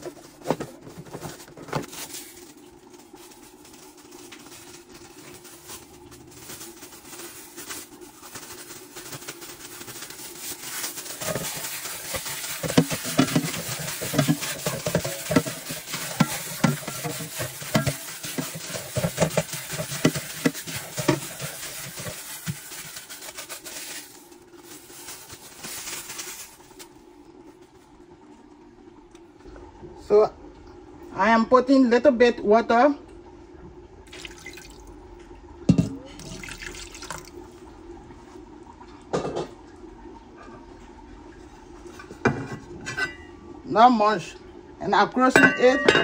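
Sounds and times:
meat squelching while stirred: 0.0 - 26.9.

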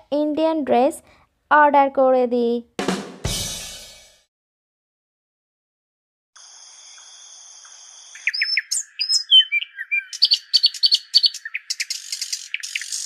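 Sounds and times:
birds chirping: 7.0 - 13.0.

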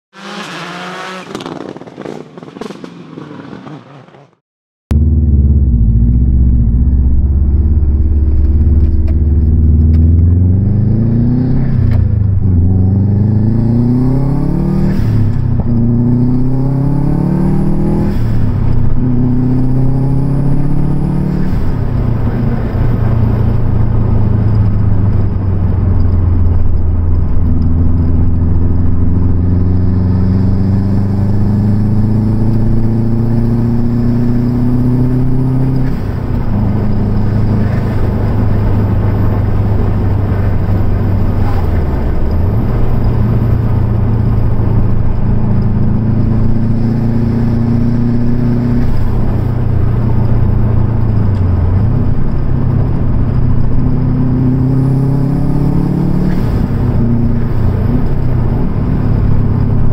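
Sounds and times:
car engine revving: 0.1 - 59.9.

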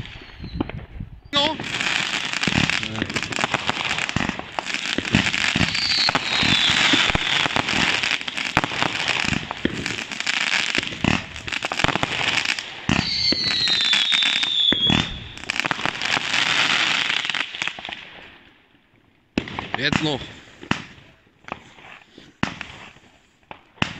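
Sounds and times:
fireworks bangs: 0.0 - 18.4, 19.4 - 23.9
fireworks crackling: 0.0 - 18.5, 19.4 - 23.9
falling firework whistle: 5.0 - 9.1, 12.9 - 15.6.

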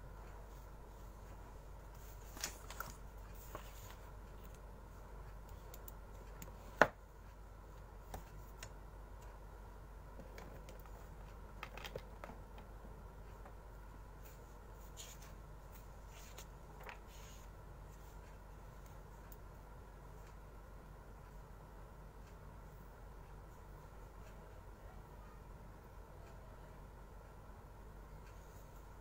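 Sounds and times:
steady low hum: 0.0 - 29.0
soft rustles: 0.2 - 5.1, 14.1 - 19.3.

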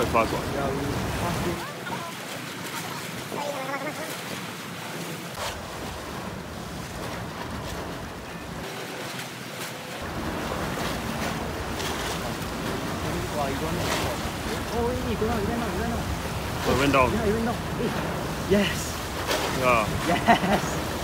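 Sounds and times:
water lapping against pier: 0.0 - 21.0.

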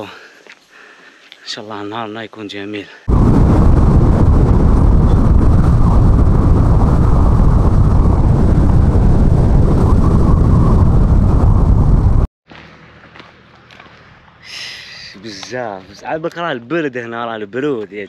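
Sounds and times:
wind rushing over microphone: 3.1 - 12.3.

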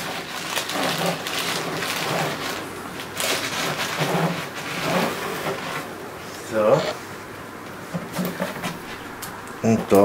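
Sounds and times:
plastic bag crinkling: 0.0 - 5.7.

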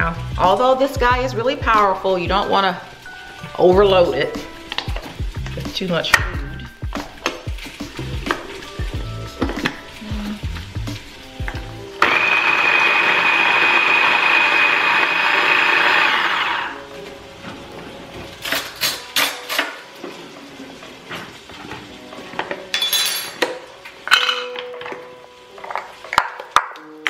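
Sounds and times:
electric food chopper whining: 11.4 - 16.9.

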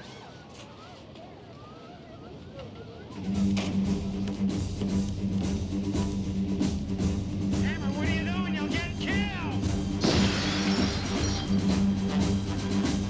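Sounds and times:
rock music with bass and drums: 3.7 - 13.0.

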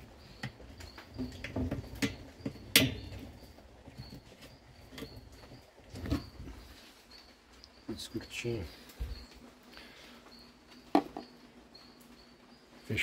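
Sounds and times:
faint high chirps: 0.0 - 13.0.

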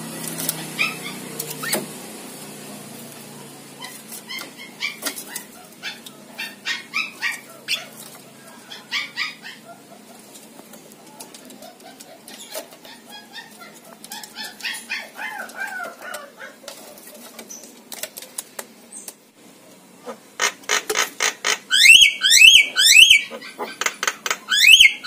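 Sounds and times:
mynas calling: 0.0 - 1.9, 3.6 - 10.4, 11.4 - 17.0, 20.0 - 25.0.

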